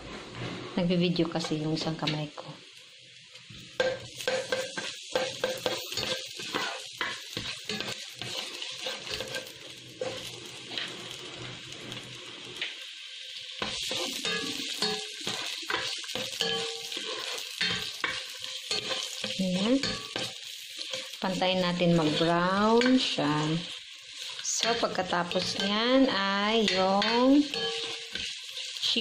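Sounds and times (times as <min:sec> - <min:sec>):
garlic and onion sizzling in oil: 0:00.0 - 0:29.0
spatula scraping a pot: 0:04.2 - 0:11.4, 0:13.6 - 0:21.3, 0:26.6 - 0:29.0.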